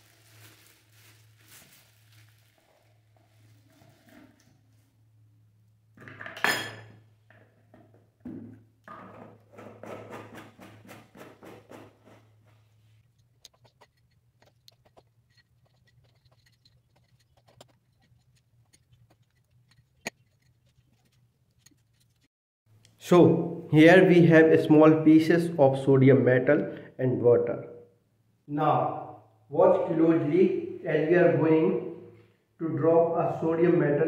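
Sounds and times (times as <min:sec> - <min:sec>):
plastic bottle and cap handling: 0:13.0 - 0:22.3.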